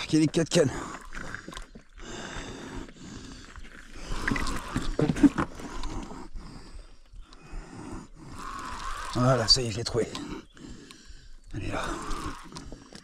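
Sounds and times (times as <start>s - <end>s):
man breathing heavily: 0.6s - 9.2s, 10.0s - 13.0s
fishing reel cranking: 8.4s - 9.6s.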